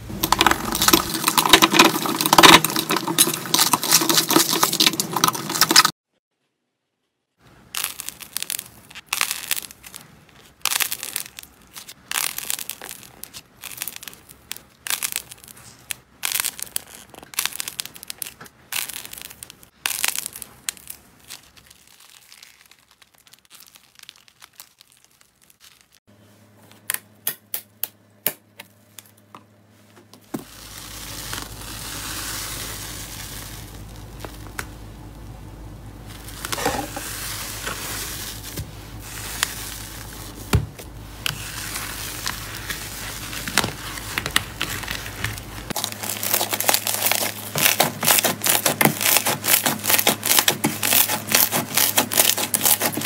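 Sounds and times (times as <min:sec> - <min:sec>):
slime crackling and popping: 0:00.1 - 0:05.9, 0:07.6 - 0:26.0, 0:30.4 - 0:35.2, 0:36.0 - 0:53.0
foamy slime hissing: 0:30.5 - 0:34.4.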